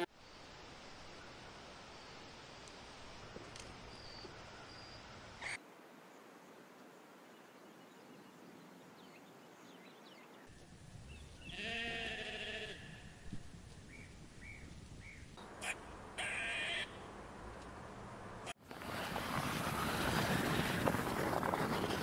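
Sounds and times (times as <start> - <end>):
sheep bleating: 11.5 - 13.0, 16.2 - 17.0.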